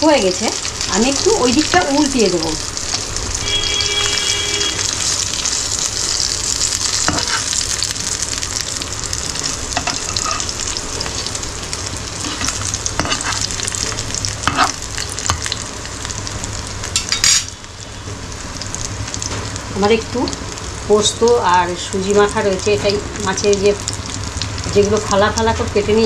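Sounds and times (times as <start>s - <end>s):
fish sizzling in oil: 0.0s - 26.0s
spatula scraping a pan: 7.1s - 7.6s, 9.8s - 10.5s, 12.2s - 13.5s, 14.5s - 14.8s.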